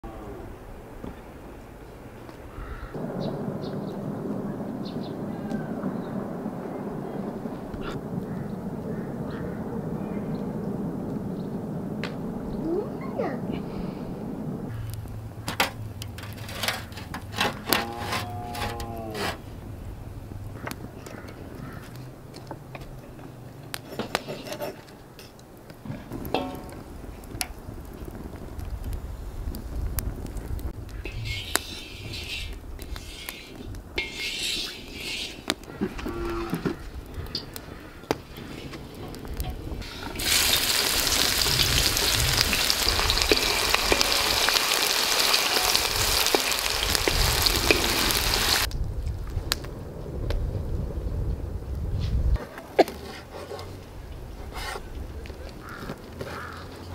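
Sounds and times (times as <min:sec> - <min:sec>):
iron pot clanking on trivet: 0:26.3 - 0:26.8
onions sizzling in hot oil: 0:30.9 - 0:35.5, 0:39.8 - 0:48.7.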